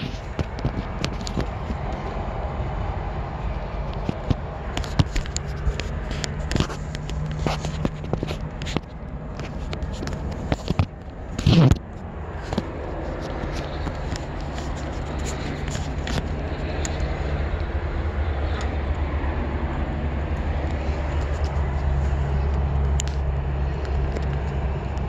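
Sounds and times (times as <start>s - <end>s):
phone handling scraping and rubbing: 0.0s - 2.5s, 3.4s - 19.0s, 20.1s - 25.0s
steady low rumble: 0.0s - 25.0s
brushing rub: 3.8s - 17.5s.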